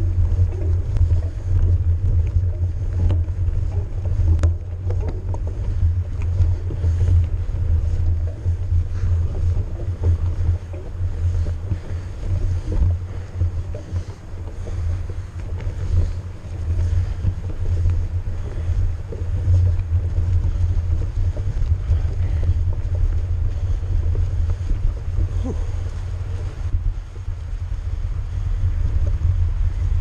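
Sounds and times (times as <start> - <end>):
bike clicks and rattles: 0.0 - 30.0
wind buffeting microphone: 0.0 - 30.0.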